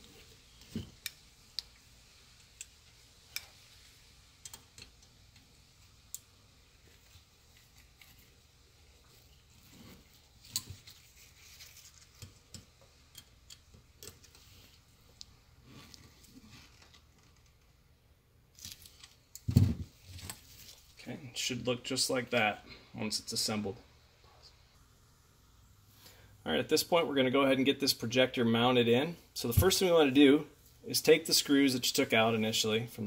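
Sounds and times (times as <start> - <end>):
screwdriver and pliers clicking on metal: 12.1 - 14.4.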